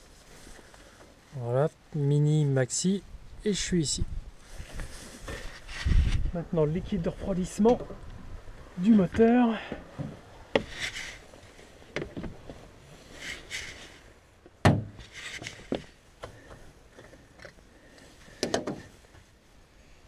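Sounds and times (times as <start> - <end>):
rustling scrapes: 4.4 - 6.3, 10.6 - 14.2, 15.0 - 16.5
sharp clicks and knocks: 18.4 - 18.9.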